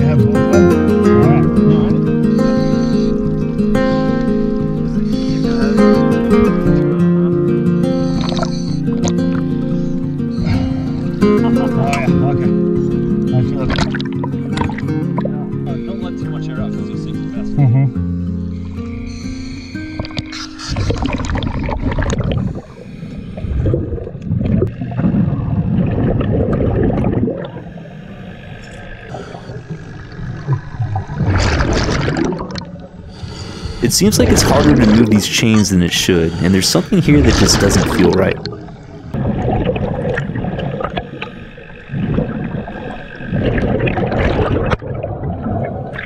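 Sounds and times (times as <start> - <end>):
regulator exhaust bubbling underwater: 19.8 - 33.2, 33.8 - 46.0.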